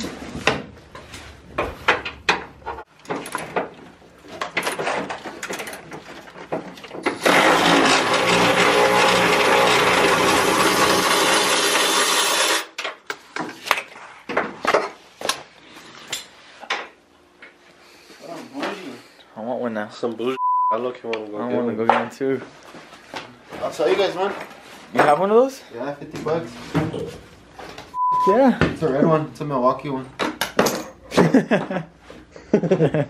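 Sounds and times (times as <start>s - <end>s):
electric ratchet running: 7.2s - 12.7s.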